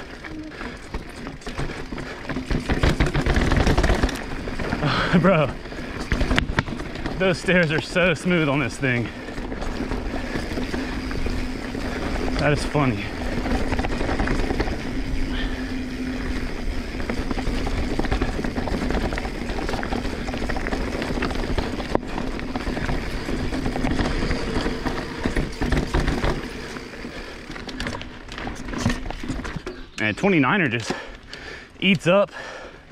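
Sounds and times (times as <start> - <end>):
bike rattles and clicks: 0.0 - 32.9
bike tyres rolling on dirt: 0.0 - 32.9
steady low hum: 8.0 - 28.6.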